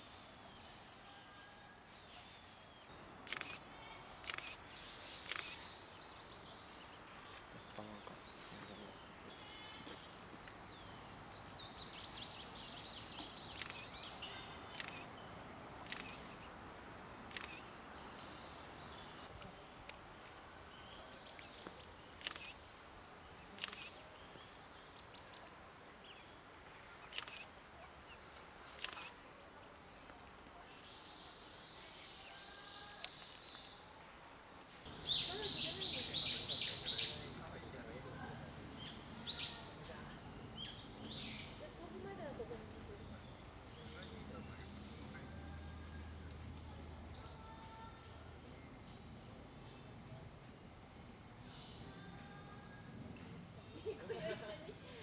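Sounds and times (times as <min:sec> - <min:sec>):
camera shutter clicks: 0:03.3 - 0:03.6, 0:04.2 - 0:04.6, 0:05.2 - 0:05.6, 0:13.6 - 0:13.9, 0:14.7 - 0:15.1, 0:15.8 - 0:16.3, 0:17.3 - 0:17.7, 0:22.2 - 0:22.6, 0:23.6 - 0:24.0, 0:27.1 - 0:27.5, 0:28.8 - 0:29.2.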